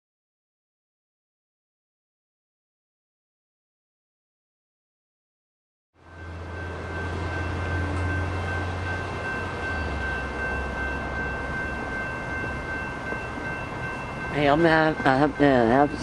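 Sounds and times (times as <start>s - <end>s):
train rumbling: 6.0s - 16.0s.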